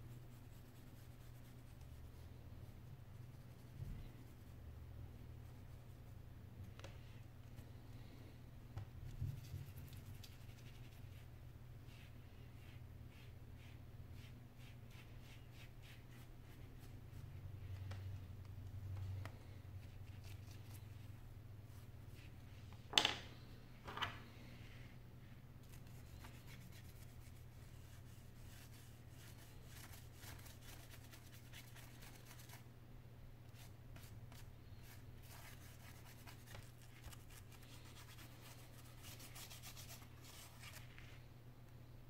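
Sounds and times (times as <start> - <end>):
brush scratching and rubbing: 9.1 - 17.4, 25.6 - 32.6, 33.6 - 41.0.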